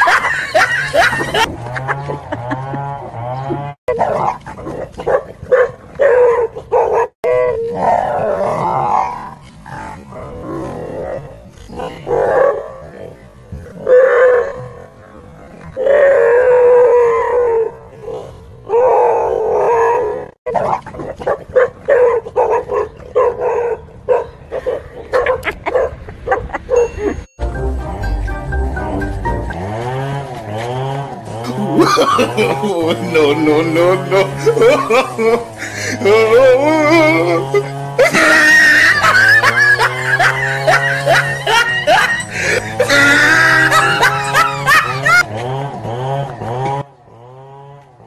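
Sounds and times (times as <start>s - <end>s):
dogs barking: 3.9s - 7.6s, 20.5s - 26.9s, 37.5s - 45.3s
background music with low drone: 27.4s - 30.5s
drawn-out cry: 29.5s - 48.0s
sliding voice-like cries: 31.5s - 45.2s.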